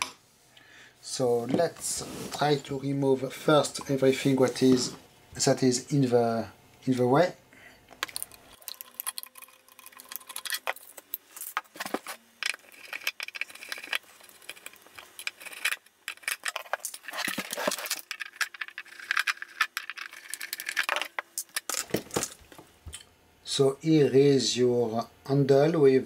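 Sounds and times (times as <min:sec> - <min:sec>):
screwdriver clicking and scraping metal: 0:08.0 - 0:22.0.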